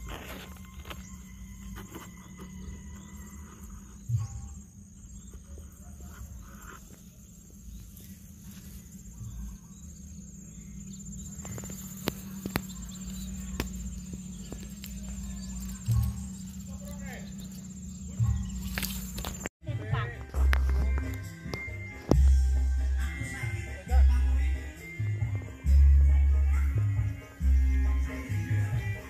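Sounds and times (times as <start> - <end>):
high-pitched insect buzzing: 0.0 - 19.5
low steady hum: 0.0 - 29.0.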